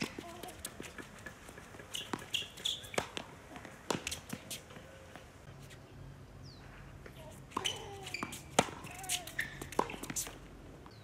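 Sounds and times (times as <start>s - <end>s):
tennis ball struck with rackets: 0.0s - 4.6s, 7.5s - 10.4s
tennis ball bouncing on hard court: 0.0s - 5.3s, 7.5s - 10.5s.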